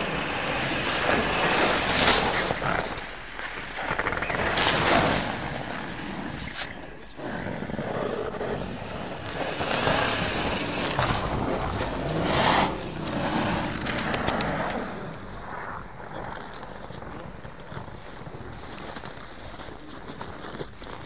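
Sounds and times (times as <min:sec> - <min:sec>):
tyres spraying grit: 0:00.0 - 0:18.5
engine revving hard: 0:07.8 - 0:15.1.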